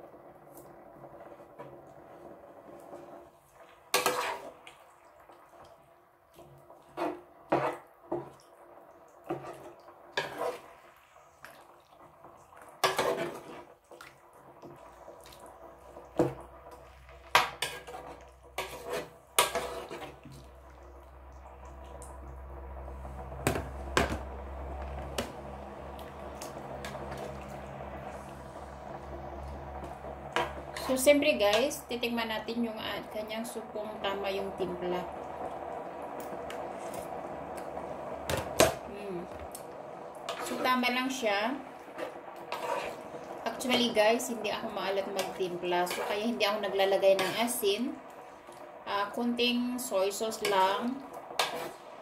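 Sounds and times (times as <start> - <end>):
steady low hiss: 14.8 - 52.0.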